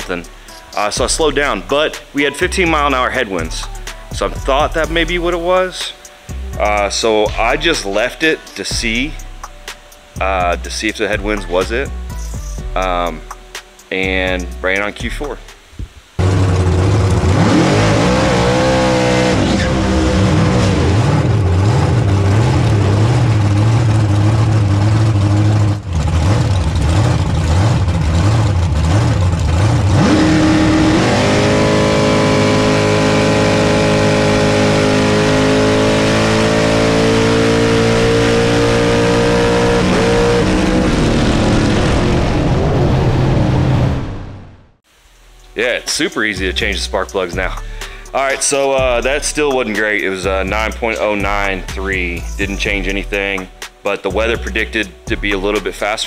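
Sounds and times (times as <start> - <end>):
drag racing engine revving: 16.0 - 44.6.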